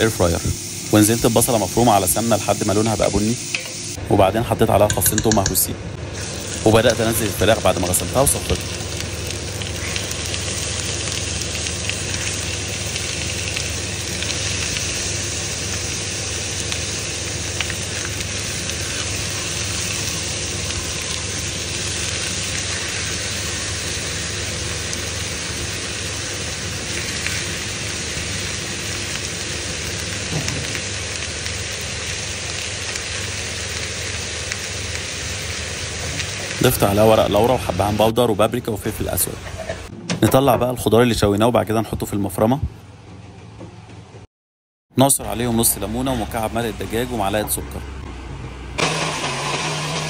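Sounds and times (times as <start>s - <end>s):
chicken sizzling in a pan: 0.0s - 4.0s, 6.1s - 38.1s.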